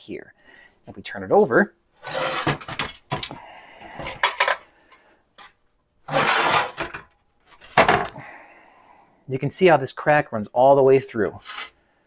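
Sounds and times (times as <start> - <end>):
metal scraping and clanking on metal: 2.0 - 3.4, 4.0 - 4.6, 6.1 - 8.1.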